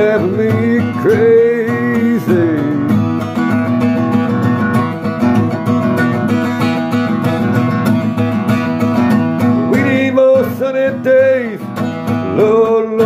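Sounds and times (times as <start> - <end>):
acoustic guitar strumming: 0.0 - 13.0.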